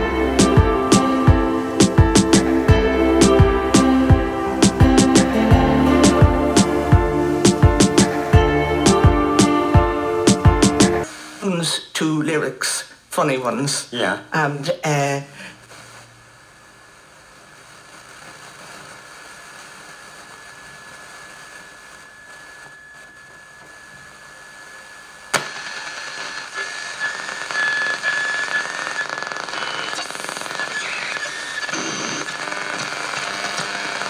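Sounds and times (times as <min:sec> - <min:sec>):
radio static hiss: 0:00.0 - 0:34.0
whistling radio tones: 0:18.0 - 0:34.0.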